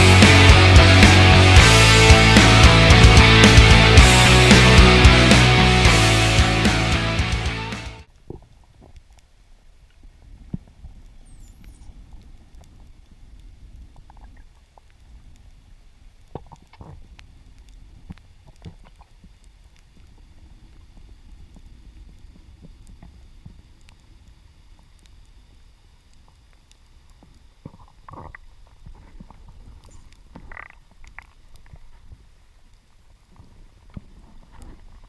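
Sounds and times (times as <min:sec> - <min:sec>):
faint underwater clicks and crackles: 0:08.1 - 0:35.0
underwater rumble of moving water: 0:08.1 - 0:35.0.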